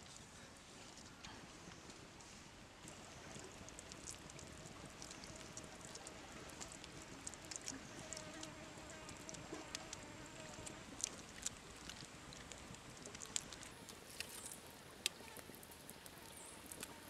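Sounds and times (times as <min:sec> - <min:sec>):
faint insect buzz: 0:07.3 - 0:11.0, 0:13.4 - 0:17.0.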